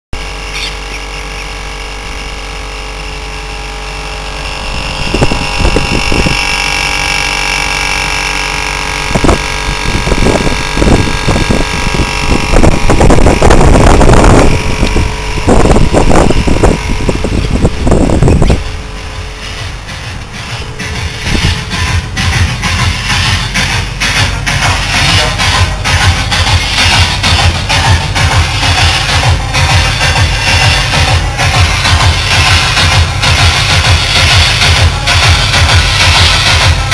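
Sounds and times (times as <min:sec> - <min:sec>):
air conditioner unit humming: 0:00.2 - 0:36.9
wind buffeting microphone: 0:04.5 - 0:06.9, 0:08.9 - 0:23.0.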